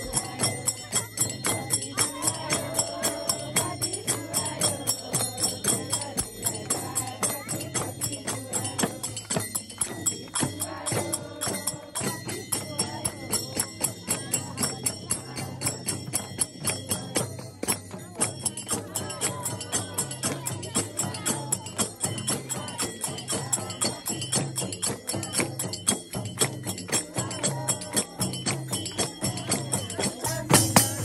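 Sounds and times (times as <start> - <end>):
jingling percussion: 0.0 - 31.0
steady ringing tones: 0.0 - 31.0
drum strokes: 27.8 - 31.0.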